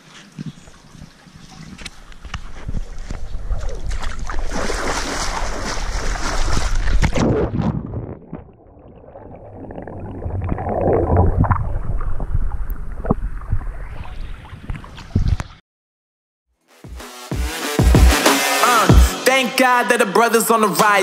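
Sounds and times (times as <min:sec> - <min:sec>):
wind on microphone: 0:00.4 - 0:08.4, 0:10.1 - 0:15.6
pool water splashing: 0:02.9 - 0:07.1
underwater gurgling and bubbling: 0:06.7 - 0:15.0.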